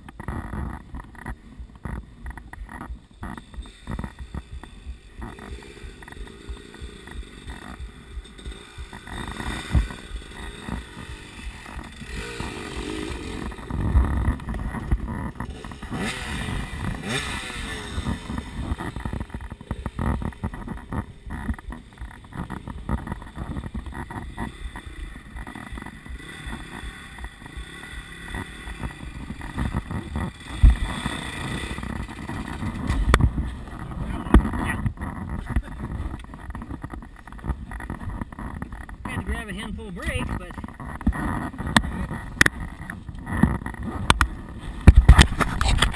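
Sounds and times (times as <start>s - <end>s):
dirt bike engine revving: 0.0s - 45.9s
dirt bike engines running: 0.0s - 45.9s.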